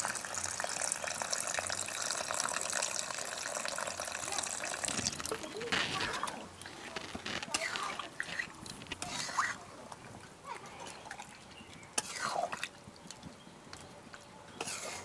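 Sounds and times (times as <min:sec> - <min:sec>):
metal spatula stirring thick curry: 0:12.0 - 0:12.4.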